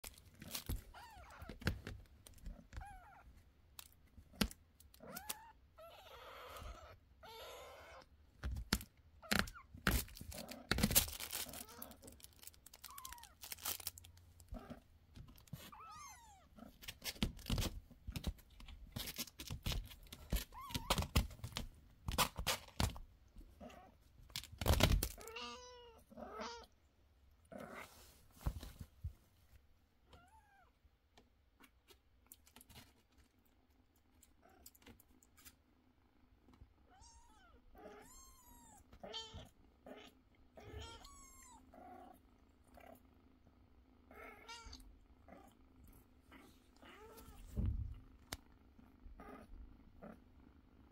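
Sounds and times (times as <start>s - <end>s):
kittens mewing: 4.9s - 8.2s, 24.7s - 26.8s, 37.0s - 42.2s.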